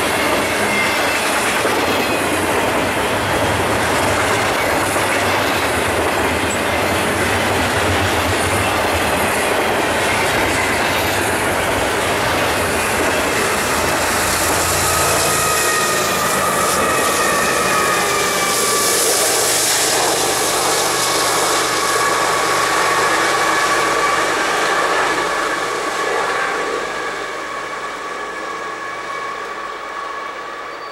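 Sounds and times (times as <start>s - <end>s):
freight train rumbling on rails: 0.0s - 30.9s
high squealing tones: 12.6s - 24.3s.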